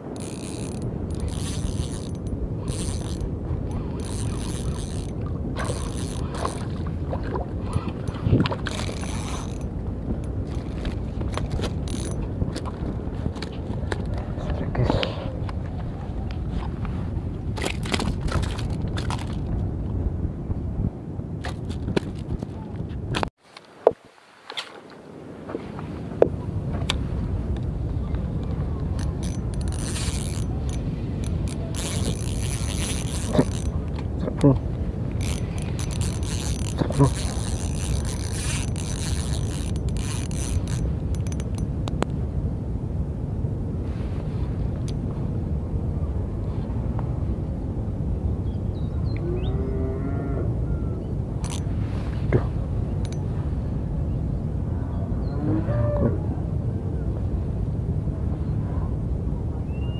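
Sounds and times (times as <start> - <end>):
wind rumble on microphone: 0.0 - 59.9
fishing reel gear whir: 0.1 - 6.8, 7.8 - 9.8, 10.4 - 12.8, 28.9 - 33.8, 35.2 - 41.7, 51.4 - 51.7.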